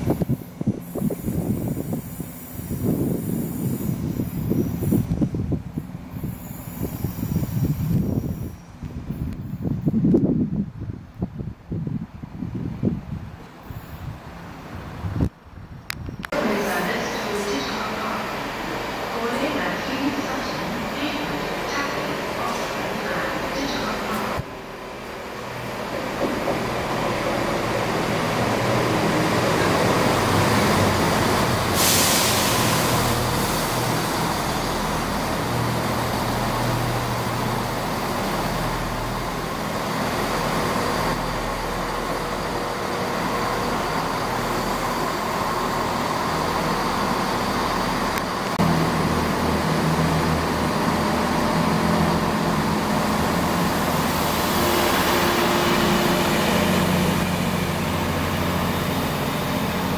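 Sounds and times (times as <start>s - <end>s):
train wheels rumbling on rails: 0.0s - 59.9s
brief hiss: 31.7s - 33.1s.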